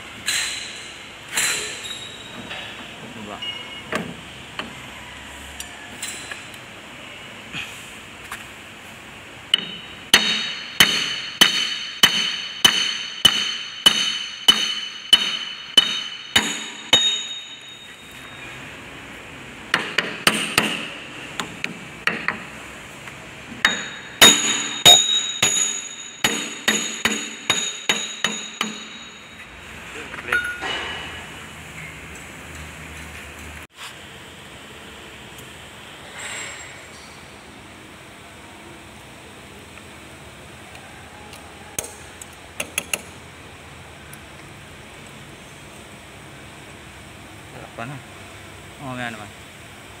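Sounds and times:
hammer ringing on metal: 0:09.6 - 0:17.9, 0:23.6 - 0:29.4.

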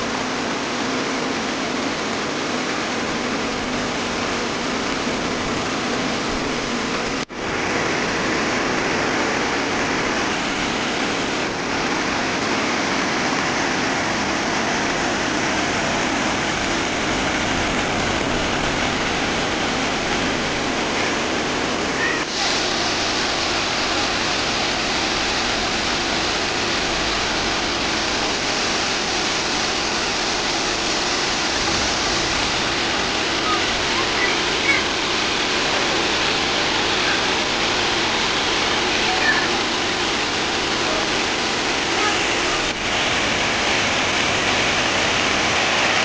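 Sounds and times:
water rushing over rocks: 0:00.0 - 0:46.0.

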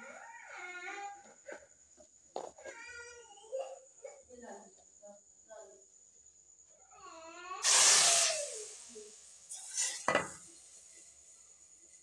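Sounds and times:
hot oil sizzling: 0:07.6 - 0:12.0
metal pan knocks: 0:10.1 - 0:10.4.

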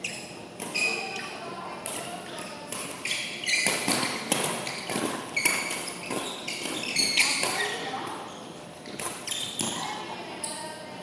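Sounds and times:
shoes squeaking on court floor: 0:00.0 - 0:10.6
racket hitting shuttlecock: 0:02.7 - 0:07.7.

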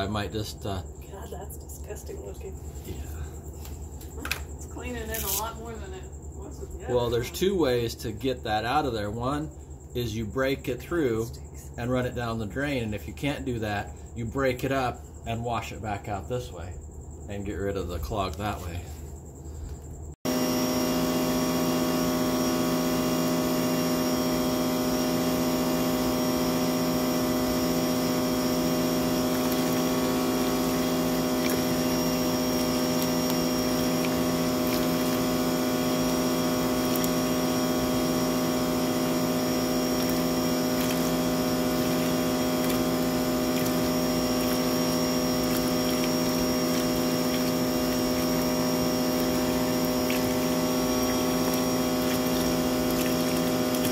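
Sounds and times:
pressure washer motor and pump hum: 0:20.2 - 0:53.9
water splashing into a tub: 0:21.4 - 0:53.9.

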